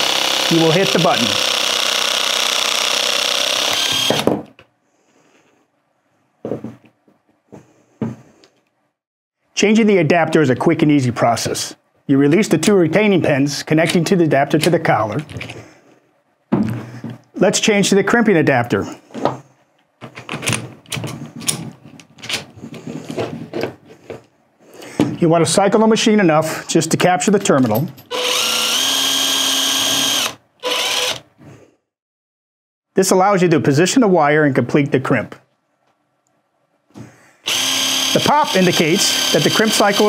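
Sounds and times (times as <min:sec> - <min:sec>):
hydraulic pump motor running: 0:00.0 - 0:04.3, 0:28.1 - 0:31.2, 0:37.5 - 0:40.0
tool handling knocks and clicks: 0:19.2 - 0:24.3.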